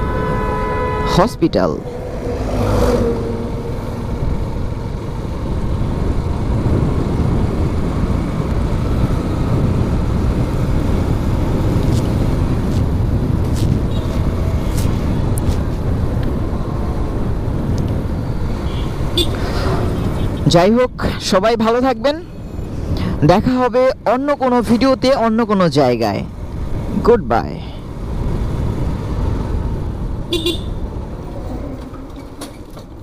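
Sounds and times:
motorcycle engine rumble: 1.7 - 21.1.

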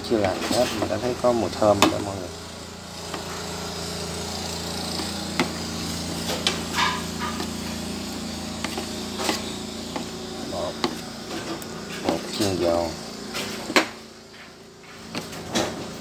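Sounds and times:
steady low hum: 0.0 - 16.0
spoon stirring thick batter: 8.6 - 11.0.

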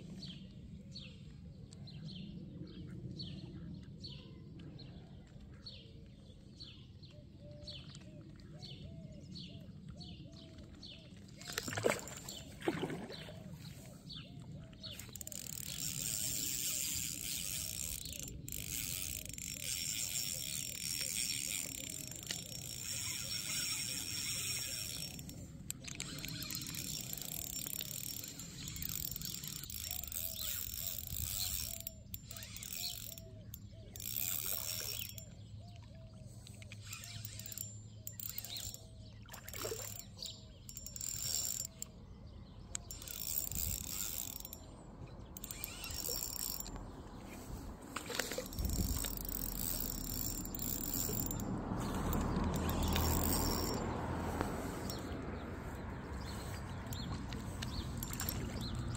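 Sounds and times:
fishing reel whirring and ticking: 11.4 - 12.5, 14.8 - 35.6, 36.4 - 58.9.

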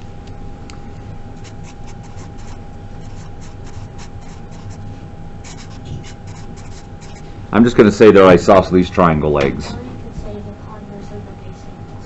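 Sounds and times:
faint hum: 0.0 - 12.0
marker scratching on paper: 1.4 - 4.8, 5.4 - 7.3.

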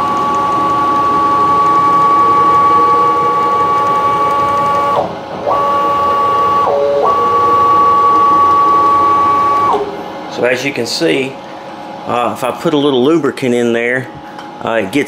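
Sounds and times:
stepper motor whine: 0.0 - 10.6.

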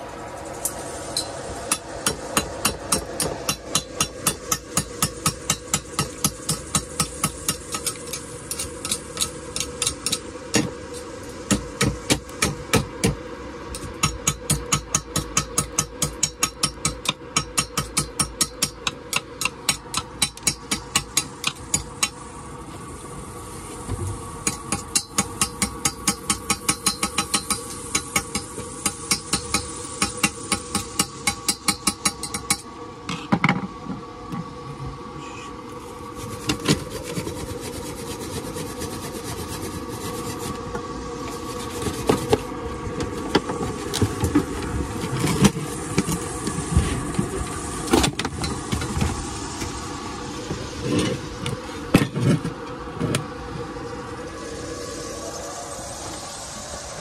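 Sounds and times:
scraping and rubbing on metal: 35.3 - 40.7.

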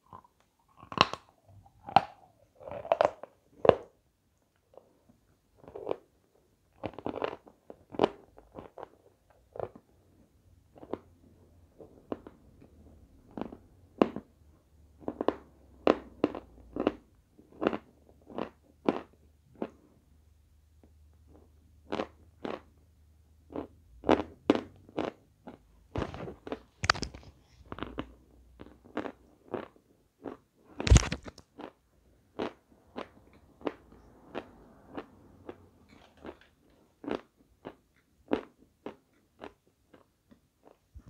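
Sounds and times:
chalk crunching and chewing: 0.0 - 3.9, 6.7 - 9.8, 15.0 - 19.9, 23.5 - 40.9.

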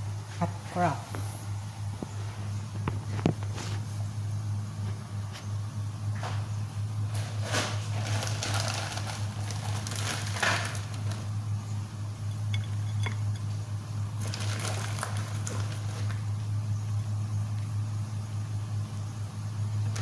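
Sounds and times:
low hum: 10.7 - 20.0
faint clicks and clinks: 12.3 - 13.5.

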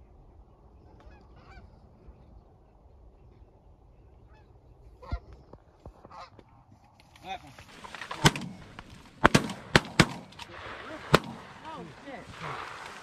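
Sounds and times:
steady low rumble: 0.0 - 13.0
geese honking: 1.0 - 1.8, 4.2 - 6.4.

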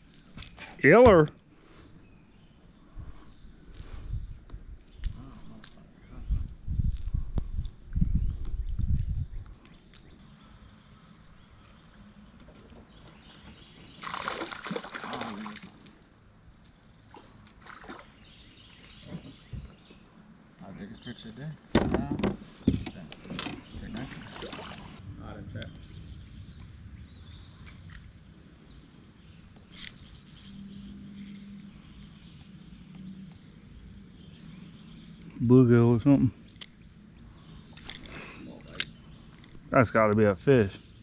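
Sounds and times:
faint low hum: 0.0 - 41.0
water splashing: 14.0 - 16.0, 17.1 - 18.2, 24.0 - 25.0
thin high-pitched whine: 23.8 - 41.0.

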